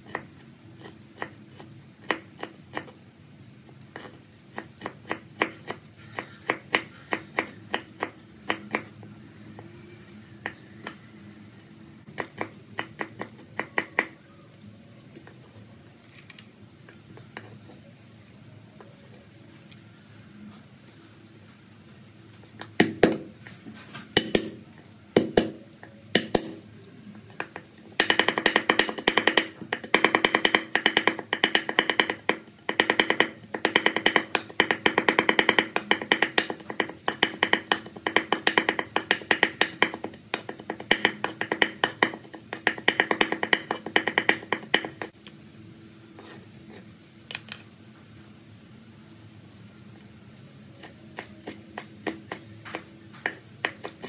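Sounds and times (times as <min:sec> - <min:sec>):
knife chopping on wooden board: 0:27.4 - 0:45.2, 0:50.8 - 0:54.0.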